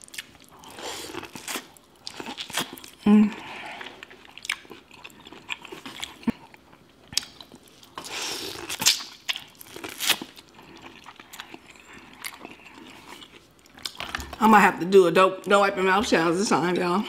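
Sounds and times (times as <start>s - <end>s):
chewing corn on the cob: 3.8s - 14.4s.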